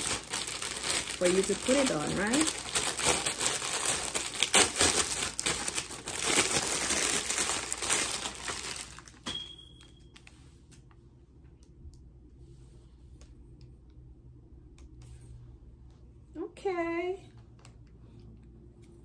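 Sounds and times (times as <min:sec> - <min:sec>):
plastic bag crinkling: 0:00.0 - 0:10.3.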